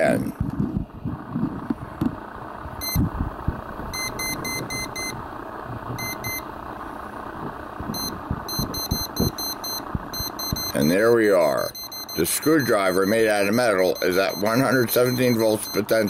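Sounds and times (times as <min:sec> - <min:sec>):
voltage detector beeping: 0:02.8 - 0:03.1, 0:03.9 - 0:05.2, 0:06.0 - 0:06.5, 0:07.9 - 0:16.0.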